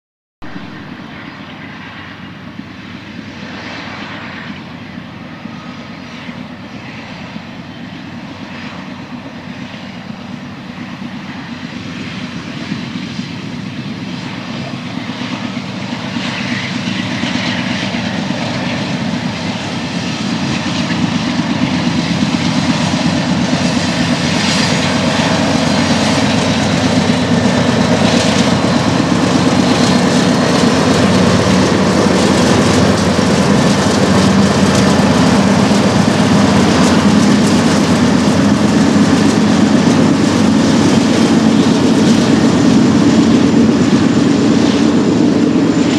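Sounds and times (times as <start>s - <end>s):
low diesel locomotive drone: 0.4s - 45.9s.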